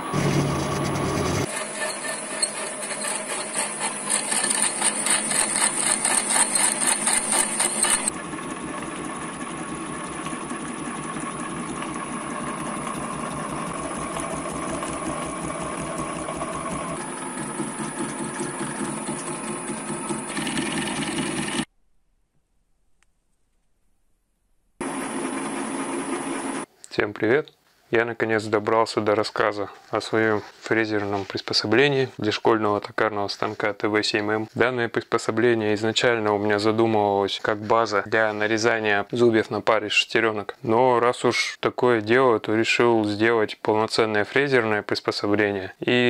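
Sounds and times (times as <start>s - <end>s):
lathe milling metal: 0.0s - 21.6s.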